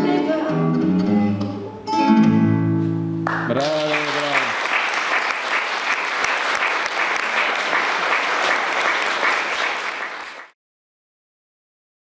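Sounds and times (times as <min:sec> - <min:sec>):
audience applauding: 0:03.3 - 0:10.6.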